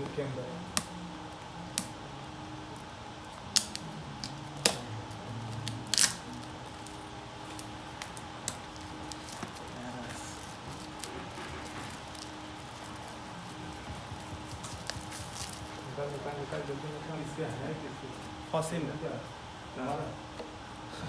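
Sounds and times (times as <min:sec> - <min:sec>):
steady faint hum: 0:00.0 - 0:21.0
fingers tapping plastic-wrapped box: 0:10.7 - 0:15.8.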